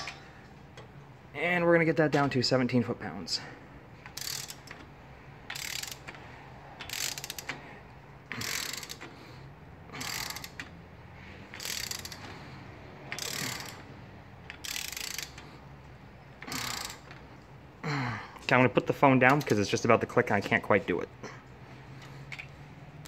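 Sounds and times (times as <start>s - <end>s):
torque wrench ratchet clicks: 4.0s - 7.7s, 8.3s - 9.1s, 10.0s - 10.8s, 11.4s - 12.3s, 13.0s - 15.6s, 16.4s - 17.3s.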